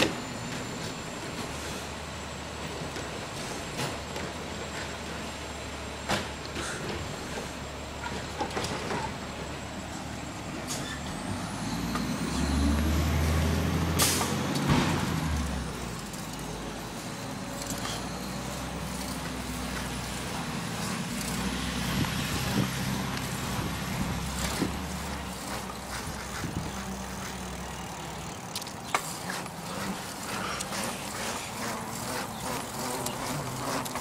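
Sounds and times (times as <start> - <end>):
garbage truck engine rumbling: 0.0 - 34.0.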